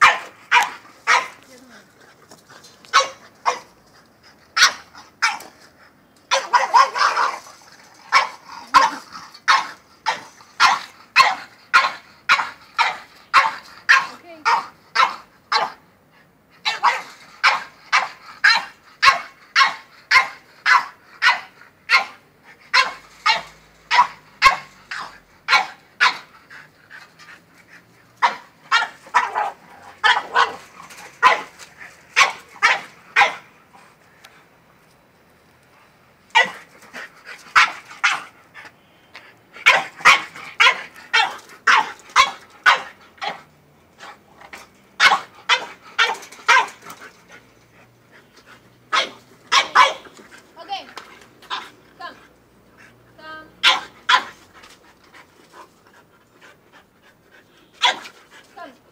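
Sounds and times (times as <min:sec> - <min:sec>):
dog barking rapidly: 0:00.0 - 0:01.4, 0:02.9 - 0:03.7, 0:06.3 - 0:07.4, 0:08.1 - 0:15.8, 0:16.6 - 0:26.3, 0:28.2 - 0:30.6, 0:31.2 - 0:31.5, 0:32.2 - 0:33.5, 0:39.6 - 0:43.4, 0:45.0 - 0:46.8, 0:48.9 - 0:50.1, 0:53.6 - 0:54.4, 0:57.8 - 0:58.1.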